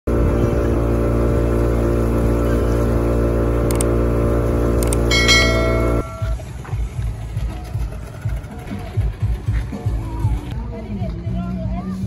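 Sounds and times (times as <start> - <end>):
boat motor idling: 0.1 - 6.5.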